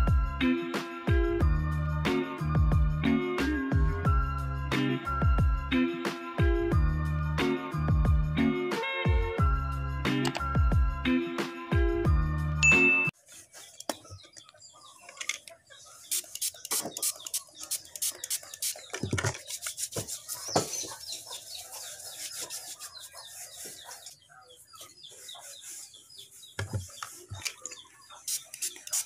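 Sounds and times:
hands rubbing on tabletop: 15.9 - 27.5.

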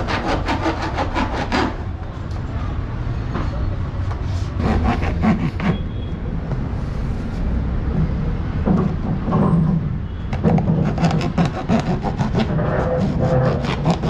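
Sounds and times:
knife sawing through plastic: 0.0 - 1.8, 4.6 - 5.8, 10.5 - 14.0.

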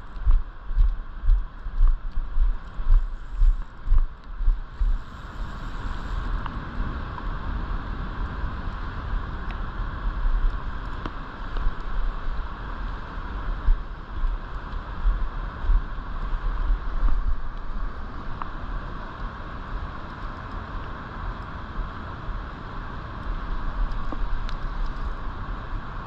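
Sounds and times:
wind buffeting microphone: 0.0 - 19.9.

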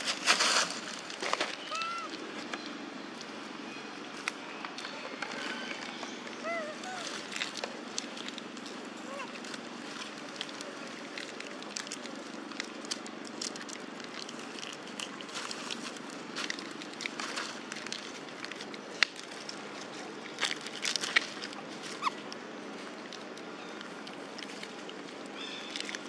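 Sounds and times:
rustling on dry leaves: 0.0 - 26.0
snack packet crackling: 6.5 - 19.6, 24.1 - 26.0.

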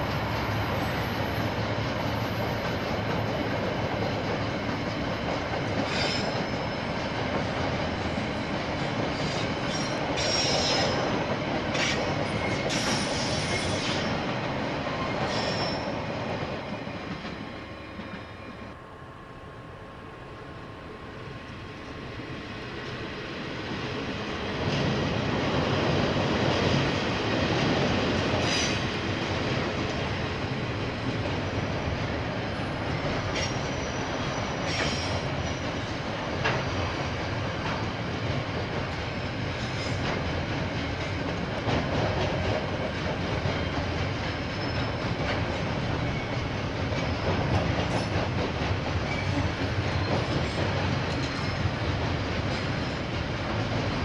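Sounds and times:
train wheels rumbling on rails: 0.0 - 19.6, 20.3 - 54.0
high wheel squeals: 5.8 - 6.8, 9.2 - 11.0, 11.8 - 14.2, 15.1 - 16.1, 33.4 - 35.6, 44.5 - 45.1.

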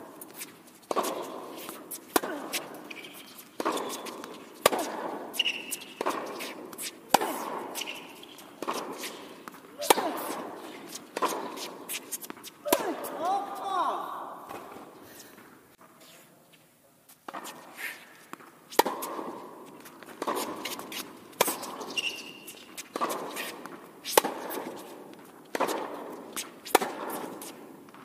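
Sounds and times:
tennis ball struck by racket: 0.3 - 13.4, 17.3 - 28.0
ball bouncing on hard court: 0.9 - 13.2, 18.4 - 24.8, 25.5 - 28.0
shoe squeak: 2.6 - 4.6, 5.3 - 7.0, 7.7 - 9.3, 20.6 - 24.2.

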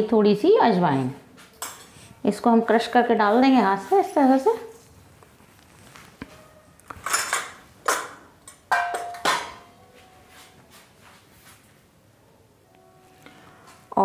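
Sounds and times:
spoon clinking against metal bowl: 8.5 - 9.7.

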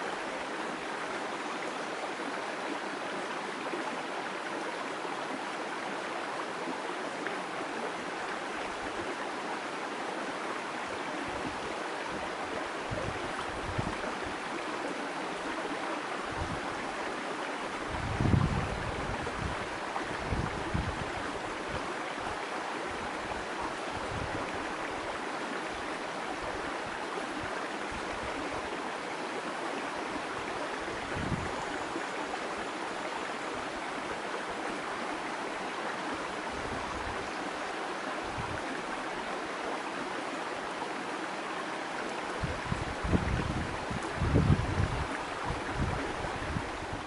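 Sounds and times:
stream babbling over rocks: 0.0 - 47.0.

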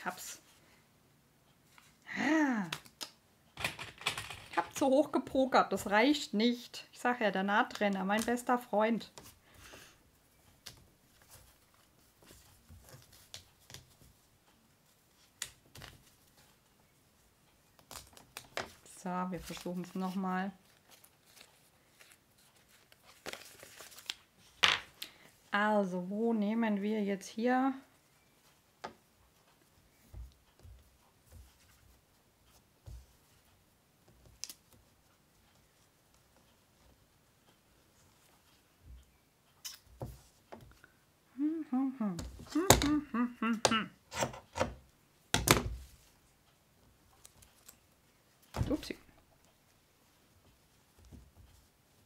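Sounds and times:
paper and fabric rustling: 10.5 - 16.7, 17.8 - 24.6, 29.5 - 39.1
fabric and paper handling: 17.7 - 24.6.

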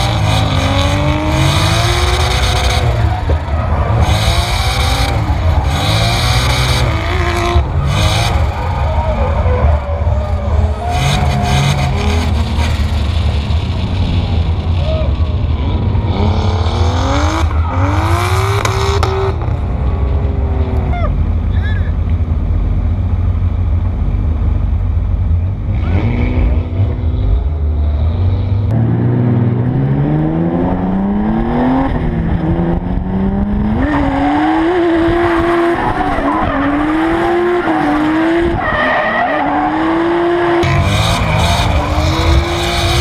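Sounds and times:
car engine revving: 0.0 - 43.0.

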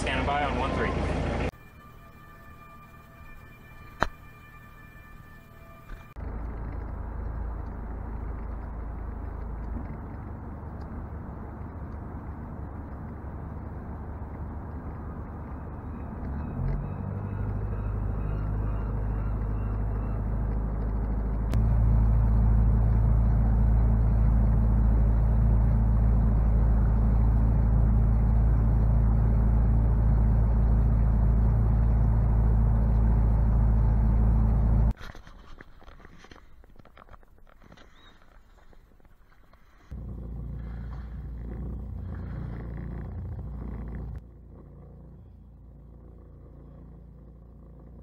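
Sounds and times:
boat engine droning: 0.0 - 35.0, 39.4 - 48.0.

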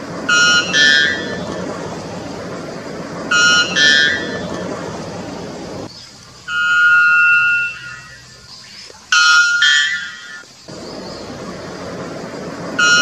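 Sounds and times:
background hiss: 0.0 - 13.0
bird singing clear notes: 5.8 - 11.8.

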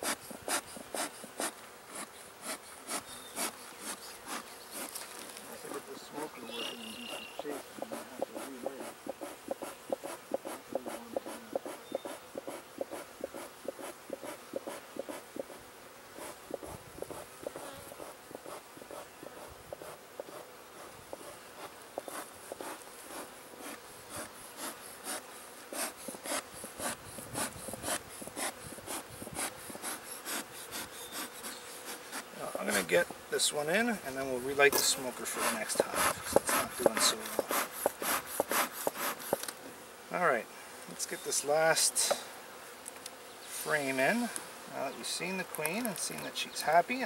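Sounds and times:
sharp clicks and scratches: 0.0 - 5.8, 16.2 - 32.9, 34.7 - 39.6
bees buzzing: 0.0 - 47.0.

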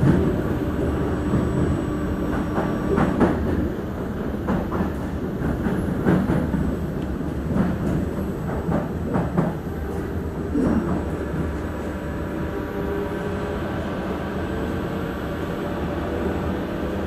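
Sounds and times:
wheels clacking on track: 0.0 - 11.7
train wheels rumbling on rail: 0.0 - 17.0.

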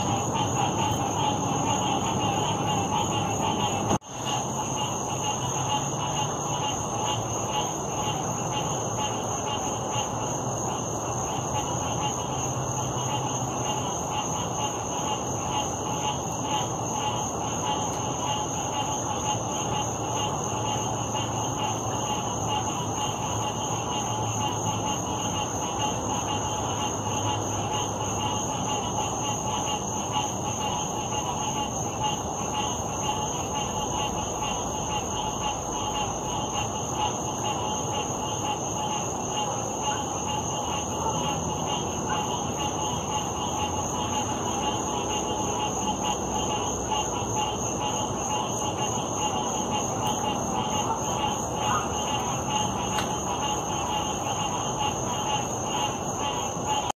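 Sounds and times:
chorus of frogs calling: 0.0 - 56.9
high-pitched insect trill: 0.0 - 56.9.

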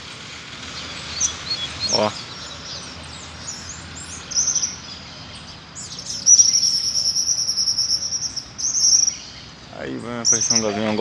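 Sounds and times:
bird singing high trill: 0.8 - 11.0
bird short song phrase: 4.3 - 11.0.

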